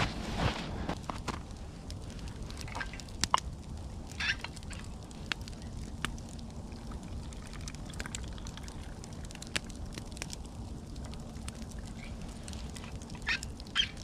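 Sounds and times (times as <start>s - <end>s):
campfire crackling and popping: 0.0s - 14.0s
tea pouring into a cup: 6.6s - 9.9s.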